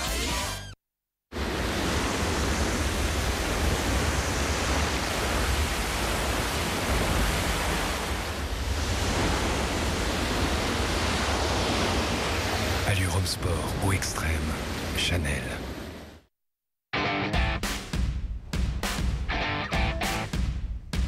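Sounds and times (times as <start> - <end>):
heavy surf breaking: 1.3 - 16.2.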